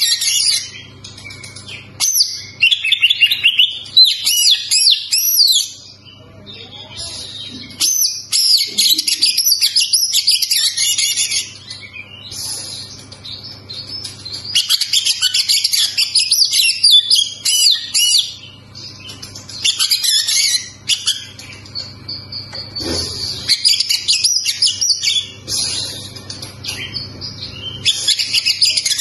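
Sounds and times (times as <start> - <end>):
bird singing warbling phrases: 0.0 - 29.0.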